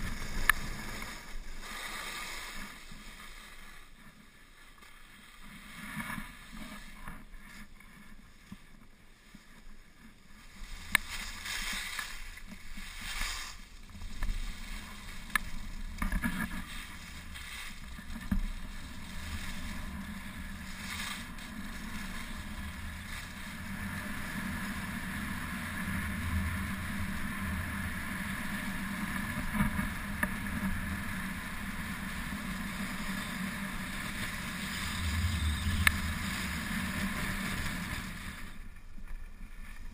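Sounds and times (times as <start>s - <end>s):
skis scraping over snow: 0.0s - 39.9s
wind rushing over microphone: 10.6s - 38.7s.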